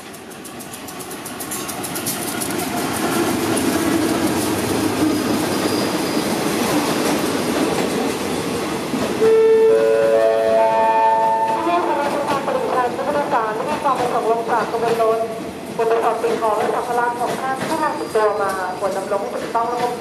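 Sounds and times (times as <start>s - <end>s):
train wheels clicking over rail joints: 0.0s - 9.2s, 16.2s - 20.0s
train rumble: 0.0s - 20.0s
train horn: 9.2s - 12.0s.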